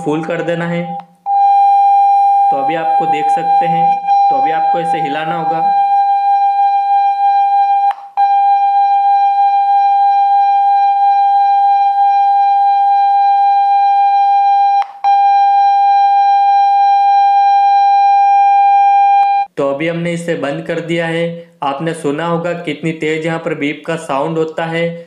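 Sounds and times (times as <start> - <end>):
loud steady beep from phone speaker: 1.3 - 10.2, 10.8 - 19.5.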